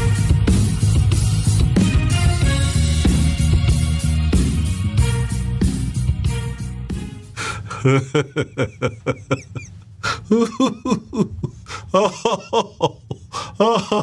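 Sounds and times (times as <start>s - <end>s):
intro music: 0.0s - 8.8s
man laughing breathily: 7.4s - 14.0s.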